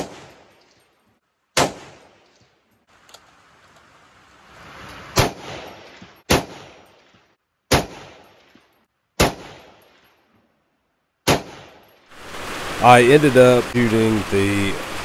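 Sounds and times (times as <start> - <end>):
rifle shots with echo: 0.0 - 0.6, 1.6 - 2.2, 5.2 - 7.0, 7.7 - 8.6, 9.2 - 9.9, 11.2 - 11.8.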